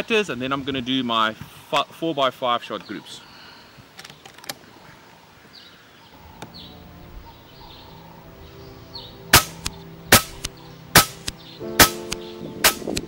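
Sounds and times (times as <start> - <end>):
soft background music: 6.2 - 13.0
air rifle shot: 9.3 - 13.0.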